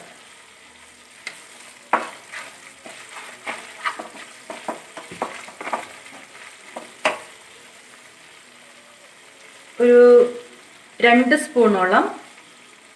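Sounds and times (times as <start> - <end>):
gravy sizzling in oil: 0.0 - 12.9
spatula scraping a pan: 1.3 - 7.4.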